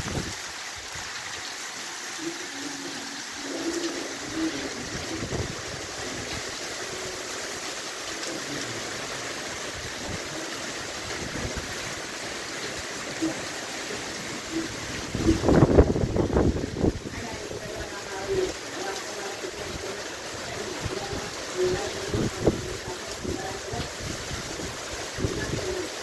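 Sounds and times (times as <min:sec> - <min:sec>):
wind gusts buffeting microphone: 0:00.0 - 0:00.4, 0:04.4 - 0:06.5, 0:14.7 - 0:18.4, 0:20.8 - 0:25.8
heavy rain falling: 0:00.0 - 0:26.0.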